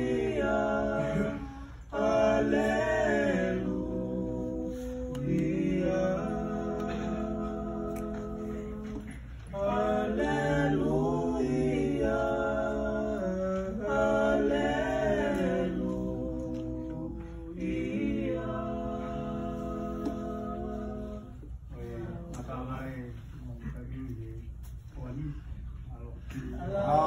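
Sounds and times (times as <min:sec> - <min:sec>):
choir singing a hymn: 0:00.0 - 0:22.8, 0:26.6 - 0:27.0.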